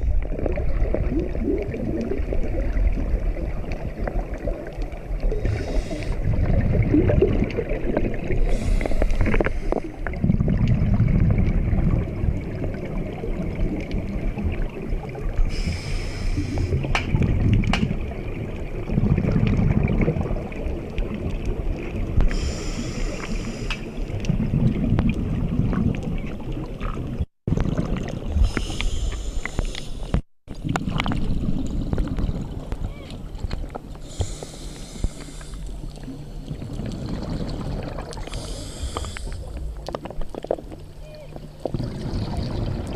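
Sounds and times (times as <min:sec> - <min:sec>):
exhaled bubbles rushing: 0:00.0 - 0:22.3, 0:22.9 - 0:29.8, 0:30.5 - 0:34.2, 0:34.8 - 0:40.7, 0:41.6 - 0:42.9
regulator inhalation hiss: 0:05.4 - 0:06.2, 0:08.4 - 0:10.0, 0:15.5 - 0:16.7, 0:22.3 - 0:24.0, 0:28.4 - 0:30.2, 0:34.0 - 0:35.8, 0:38.3 - 0:39.6.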